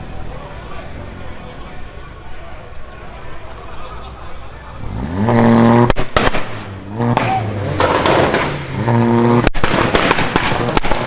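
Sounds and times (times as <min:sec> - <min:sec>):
car engine revving: 0:04.6 - 0:11.0
exhaust pops and crackles: 0:05.6 - 0:11.0.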